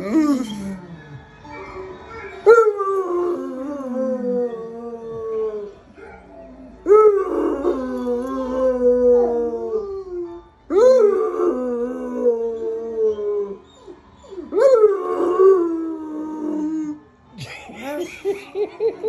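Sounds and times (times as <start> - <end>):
dog howling: 2.4 - 17.0.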